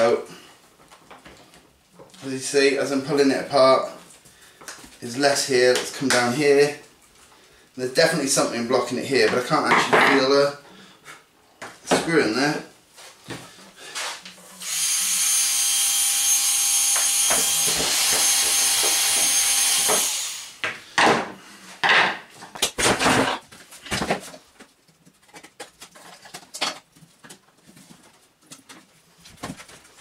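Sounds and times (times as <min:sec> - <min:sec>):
cordless drill motor whine: 0:14.6 - 0:20.6
plastic parts clattering: 0:25.1 - 0:28.0.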